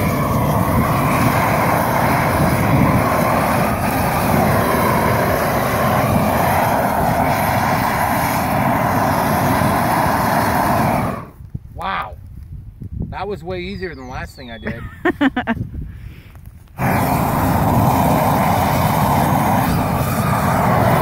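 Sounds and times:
propane torch jet roaring: 0:00.0 - 0:11.4, 0:16.7 - 0:21.0.

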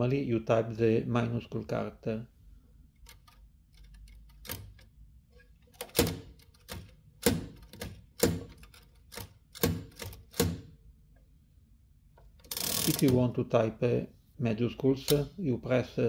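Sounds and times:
typewriter keys clacking: 0:03.0 - 0:04.9, 0:05.7 - 0:10.6.

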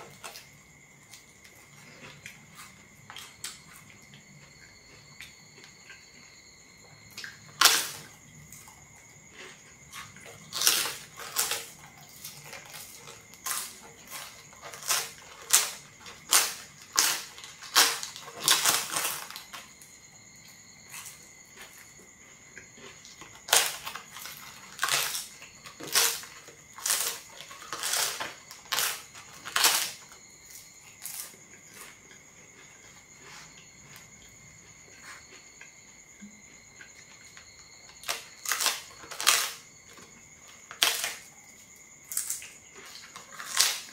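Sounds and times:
crispy wafer crunching: 0:07.2 - 0:19.7, 0:22.7 - 0:34.1, 0:37.8 - 0:39.7, 0:40.7 - 0:41.3, 0:42.1 - 0:43.9.

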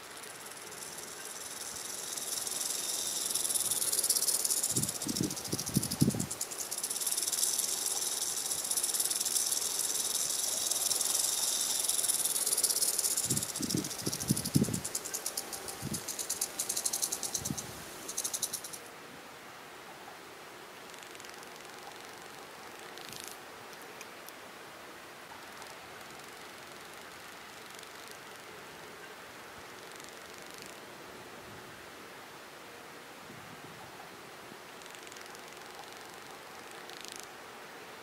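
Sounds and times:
rattlesnake rattling: 0:00.0 - 0:18.9, 0:25.6 - 0:28.2.

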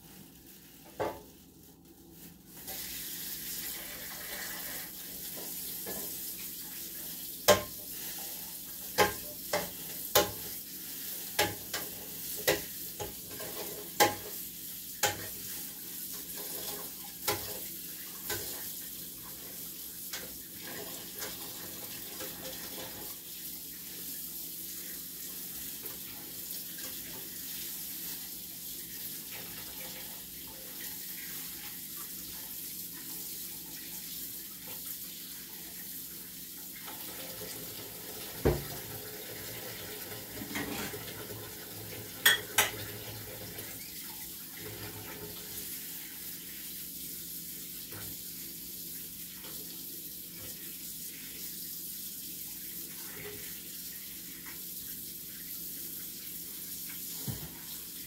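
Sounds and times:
dishes and utensils clinking: 0:40.4 - 0:41.0, 0:42.2 - 0:42.9.

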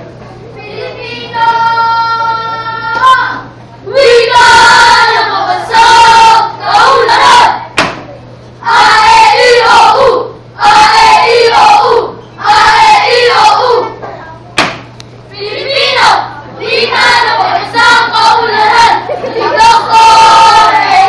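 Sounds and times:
sharp smack: 0:07.8 - 0:08.1, 0:14.6 - 0:14.9.

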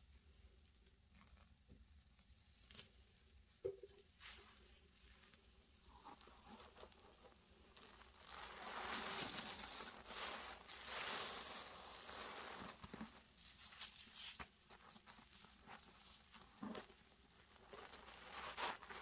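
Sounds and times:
sponge squishing in wet paste: 0:00.1 - 0:19.0
foam crackling: 0:05.2 - 0:19.0.

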